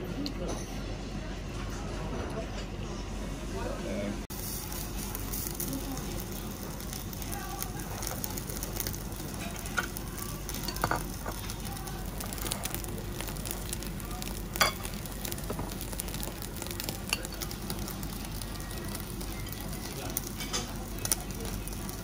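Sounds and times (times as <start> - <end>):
meat sizzling on a grill: 4.3 - 22.0.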